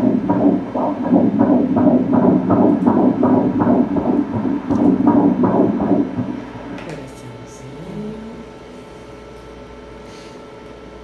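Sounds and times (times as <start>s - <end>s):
fetal heartbeat on doppler speaker: 0.0s - 6.9s.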